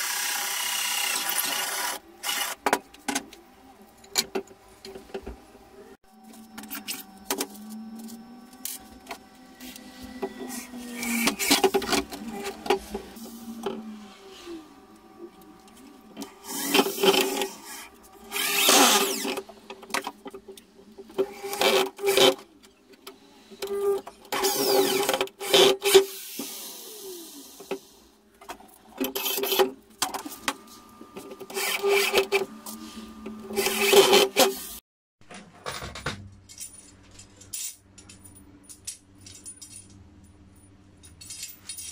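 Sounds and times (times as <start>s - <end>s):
electric drill driving screws: 0.0s - 2.6s, 16.2s - 19.4s, 24.4s - 27.5s, 31.5s - 32.5s, 33.3s - 34.7s.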